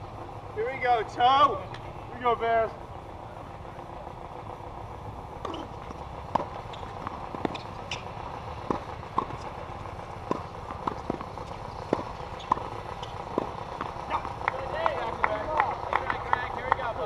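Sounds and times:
low outdoor hum: 0.0s - 17.0s
tennis balls struck and bouncing: 5.4s - 16.8s.

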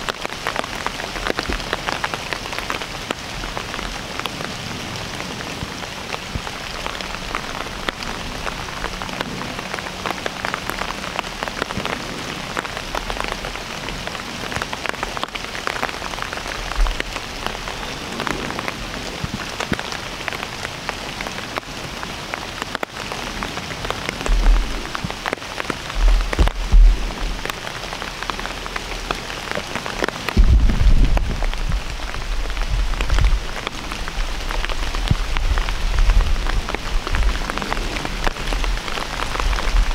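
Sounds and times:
steady rain falling: 0.0s - 39.9s
low rumbling thumps: 24.2s - 27.7s, 30.3s - 39.9s.

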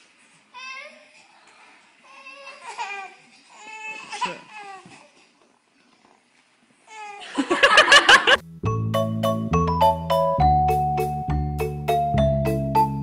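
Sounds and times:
burst of laughter: 7.2s - 8.4s.

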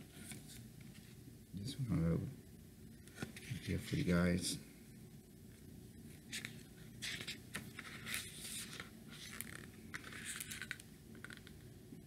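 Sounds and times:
book pages rustling: 0.1s - 1.2s, 6.2s - 11.6s.

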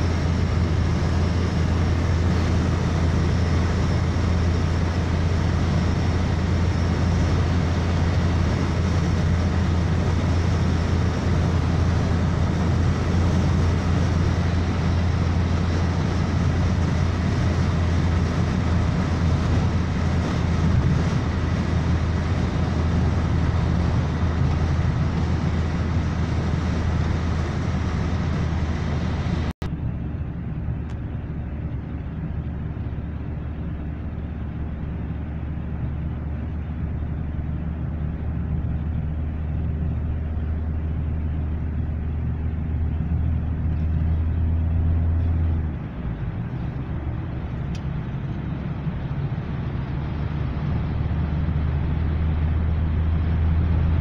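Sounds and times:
car engine and tyre drone: 0.0s - 54.0s.

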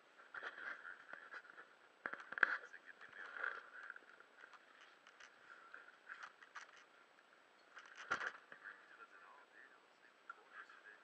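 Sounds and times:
camera handling taps and scrapes: 6.0s - 6.9s, 7.7s - 8.6s.

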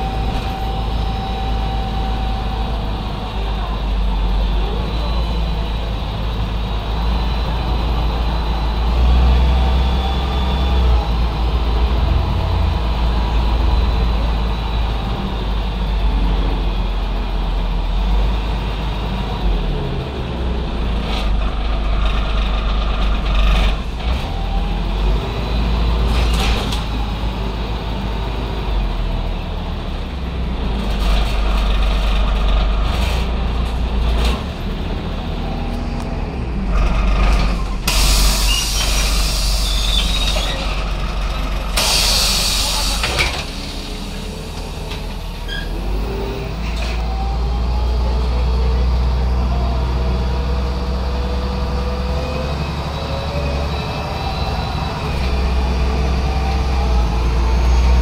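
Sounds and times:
bus diesel engine rumbling: 0.0s - 58.0s
bus body rattling: 25.7s - 27.3s, 30.6s - 47.1s
compressed air hiss: 37.9s - 40.3s, 41.8s - 43.2s.

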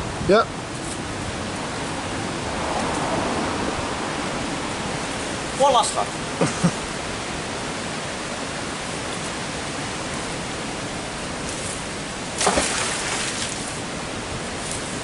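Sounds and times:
water rushing over a weir: 0.5s - 15.0s
magnet splashing into water: 12.4s - 13.7s.

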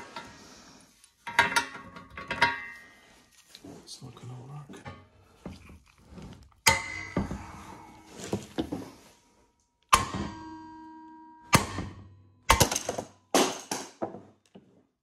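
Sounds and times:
metal knocks with ringing: 9.9s - 13.6s.

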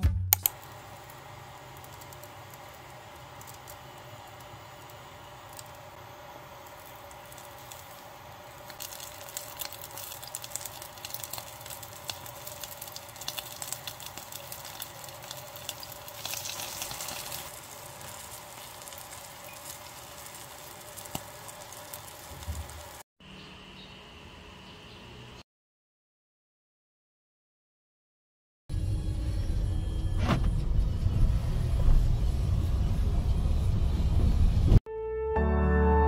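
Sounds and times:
fish frying in hot oil: 0.5s - 23.0s.

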